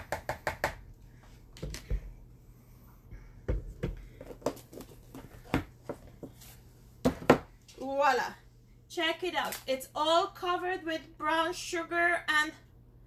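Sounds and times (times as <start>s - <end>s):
plastic containers knocking: 3.5s - 6.3s, 7.0s - 7.5s.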